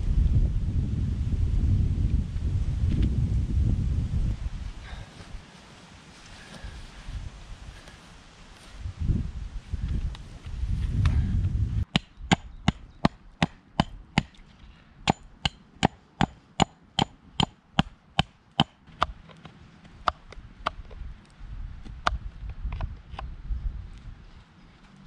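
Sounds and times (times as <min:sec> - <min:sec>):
wood being chopped: 0:11.9 - 0:14.4, 0:15.1 - 0:19.2.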